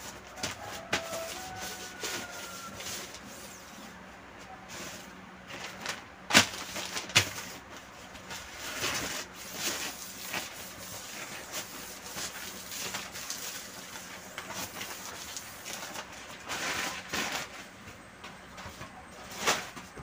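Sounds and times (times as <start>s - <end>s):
newspaper rubbing on glass: 0.4s - 3.8s, 8.6s - 17.0s.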